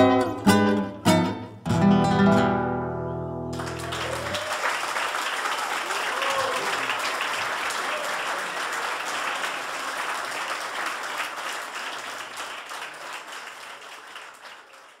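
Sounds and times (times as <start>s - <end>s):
audience applauding: 3.5s - 15.0s.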